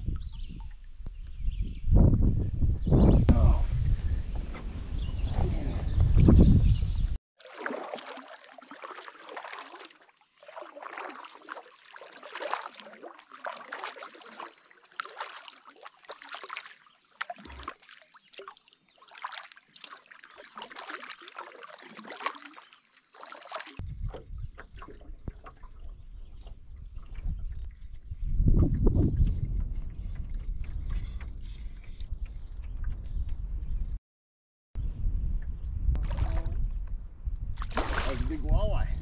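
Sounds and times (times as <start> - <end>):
wind rumble on microphone: 0.0 - 7.2, 23.8 - 34.0, 34.8 - 39.0
paddle splashing and dripping: 7.4 - 28.8, 37.6 - 38.6.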